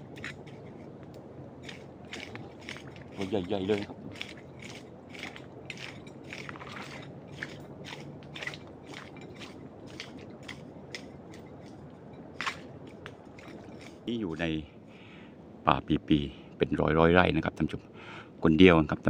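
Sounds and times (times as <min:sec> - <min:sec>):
footsteps crunching on rough ground: 0:00.0 - 0:14.1
faint low hum: 0:00.0 - 0:19.0.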